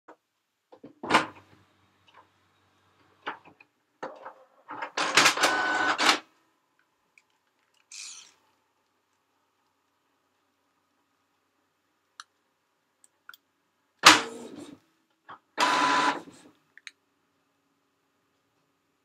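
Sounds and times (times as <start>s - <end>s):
printer mechanism running: 5.0s - 6.2s, 15.6s - 16.4s.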